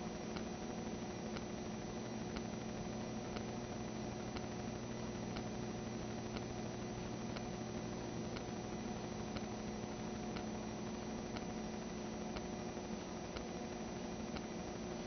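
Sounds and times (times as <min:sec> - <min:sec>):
electrical hum with hiss: 0:00.0 - 0:15.0
faint sharp ticks: 0:00.3 - 0:00.5, 0:01.3 - 0:01.5, 0:04.3 - 0:04.5, 0:05.3 - 0:05.5, 0:06.3 - 0:06.5, 0:07.3 - 0:07.5, 0:08.3 - 0:08.5, 0:09.3 - 0:09.5, 0:10.3 - 0:10.5, 0:11.3 - 0:11.5, 0:12.3 - 0:13.5, 0:14.3 - 0:14.5.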